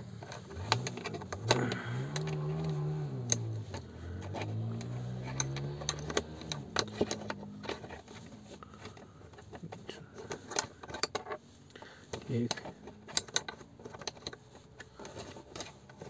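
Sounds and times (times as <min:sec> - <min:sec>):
man humming low: 0:01.3 - 0:04.9.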